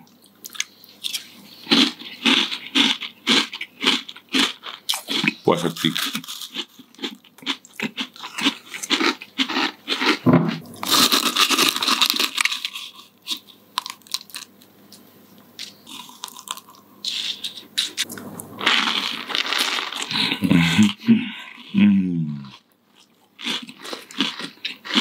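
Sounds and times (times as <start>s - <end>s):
crunching and chewing cereal: 0.4s - 15.0s, 15.6s - 21.8s, 22.4s - 25.0s.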